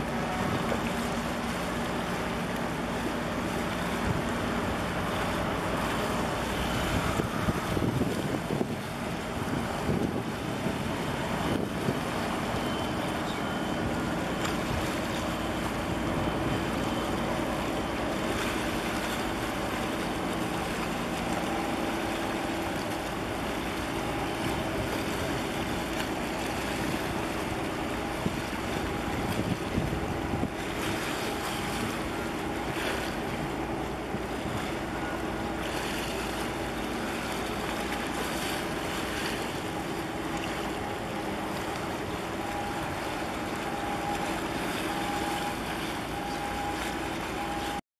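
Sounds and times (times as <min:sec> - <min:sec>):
ship engine humming: 0:00.0 - 0:47.8
water washing: 0:00.0 - 0:47.8
wind buffeting microphone: 0:06.3 - 0:12.5, 0:26.6 - 0:34.9.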